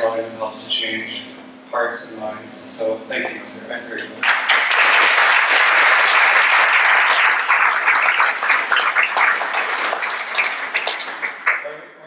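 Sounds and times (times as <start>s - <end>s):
audience applauding: 4.2s - 11.7s.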